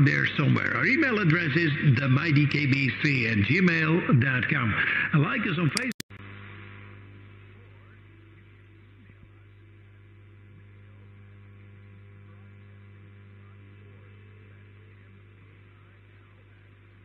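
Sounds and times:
radio band hiss: 0.0 - 17.0
low hum with overtones: 6.1 - 17.0.

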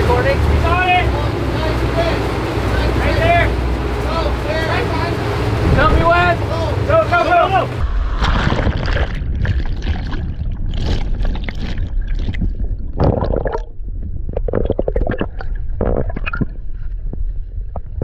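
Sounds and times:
churning water underwater: 0.0 - 18.0
bubbles bursting and gurgling: 7.8 - 16.7.

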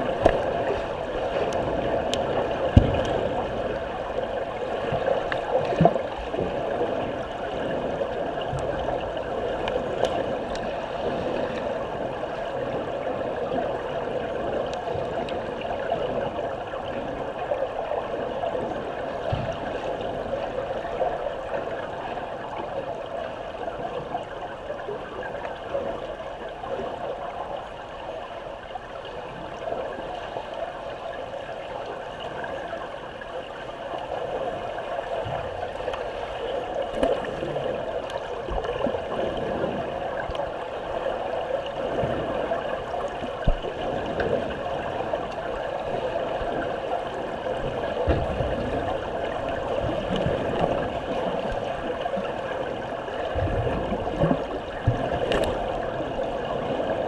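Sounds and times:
underwater churning and bubbling: 0.0 - 57.0
dull underwater thumps: 2.6 - 3.6, 47.6 - 49.1.

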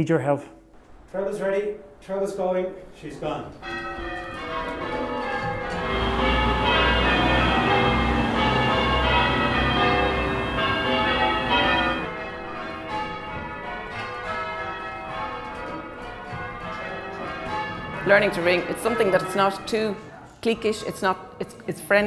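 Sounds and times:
church bells ringing: 3.4 - 20.0.

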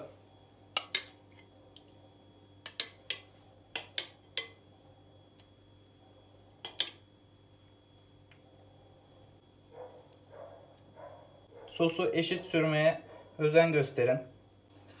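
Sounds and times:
metal spoon clinking against glass bowl: 2.6 - 4.6.

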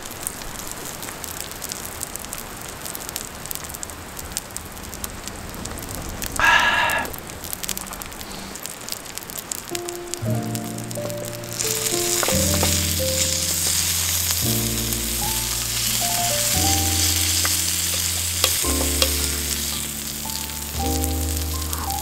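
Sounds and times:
steak sizzling on hot plate: 6.4 - 22.0
background music slow chords: 9.8 - 22.0.

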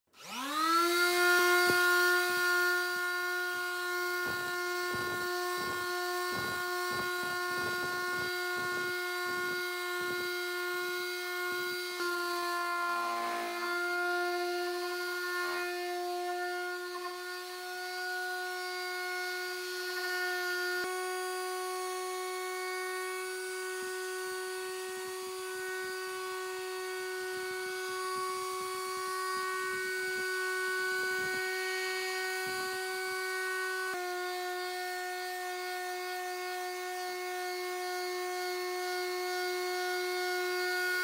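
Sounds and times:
palm sander motor hum: 0.2 - 41.0
sander pad rasping on wood: 0.2 - 41.0.

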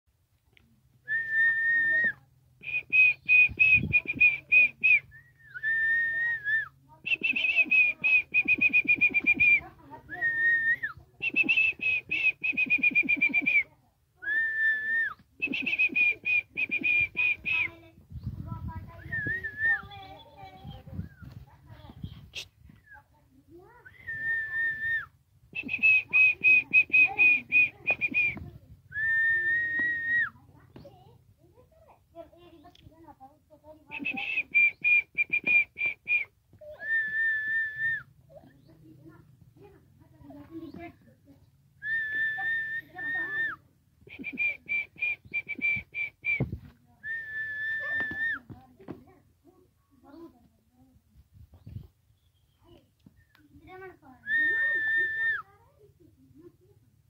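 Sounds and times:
person whistling: 1.1 - 9.6, 10.2 - 13.6, 14.3 - 17.7, 23.9 - 25.0, 25.6 - 28.4, 29.0 - 30.3, 33.9 - 38.0, 41.8 - 48.4.

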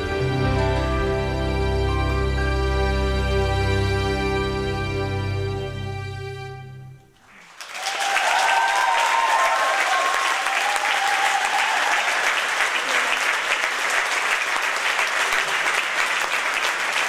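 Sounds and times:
big band held chord: 0.0 - 7.1
audience applause: 7.2 - 17.0.

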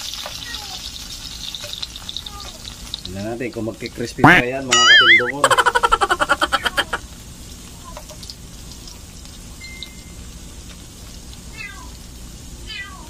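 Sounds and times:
spinach frying in hot oil: 0.0 - 13.0
cat meowing: 6.2 - 7.0, 11.5 - 12.0, 12.6 - 13.0.

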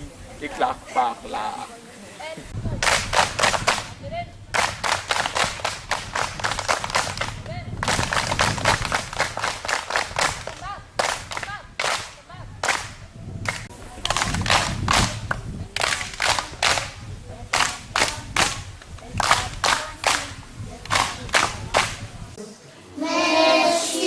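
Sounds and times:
children clapping hands rhythmically: 2.8 - 3.9, 4.5 - 22.0
children's voices: 22.9 - 24.0.

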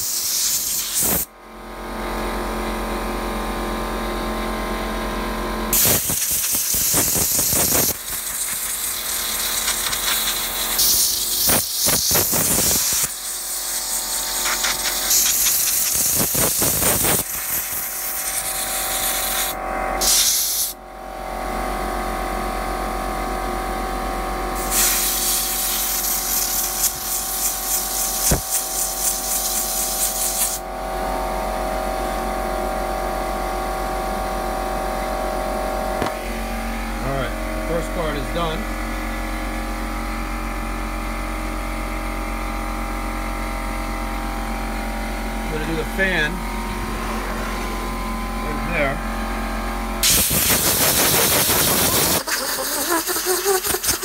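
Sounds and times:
compressed air hissing: 0.0 - 1.3, 5.7 - 20.8, 24.6 - 30.6, 50.0 - 54.0.

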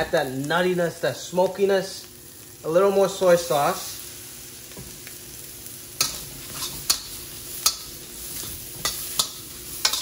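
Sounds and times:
food sizzling in a wok: 0.0 - 10.0
spatula scraping a wok: 6.0 - 10.0.

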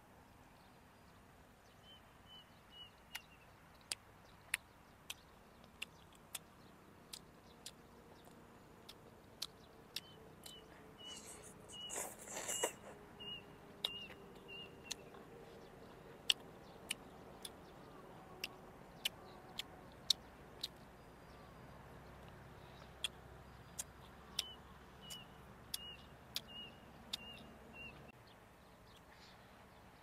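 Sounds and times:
wet chewing: 3.9 - 17.7.

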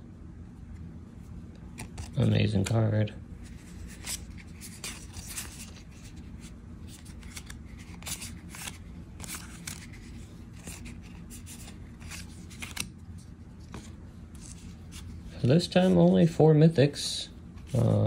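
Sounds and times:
trading cards sliding and flicking: 1.6 - 2.8, 3.4 - 16.2.

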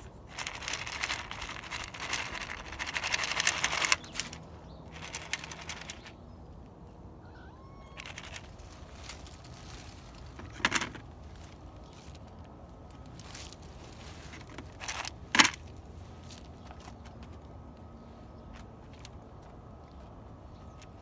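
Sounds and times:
cat meowing faintly: 7.2 - 8.1
plastic tray crinkling: 8.0 - 15.7.

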